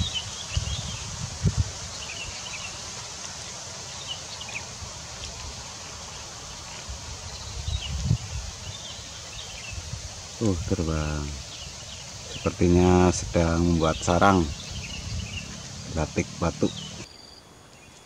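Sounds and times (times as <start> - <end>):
wind gusting on microphone: 0.0 - 3.1, 4.4 - 17.0
wind through pine trees: 0.0 - 18.0
faint bird chirps: 10.8 - 18.0
low rumbles: 12.4 - 17.0.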